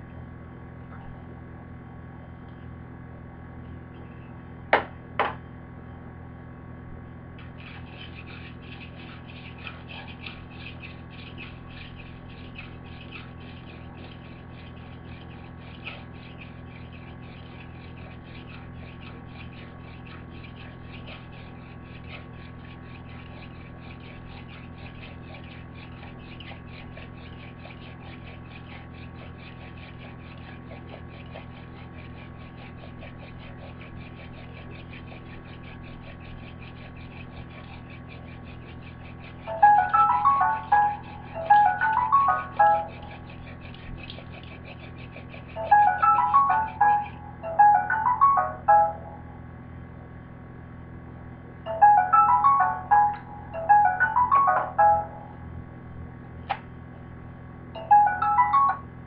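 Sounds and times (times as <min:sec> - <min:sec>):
steady low hum: 0:00.0 - 0:59.0
wooden spindle squeaking on board: 0:07.4 - 0:49.2.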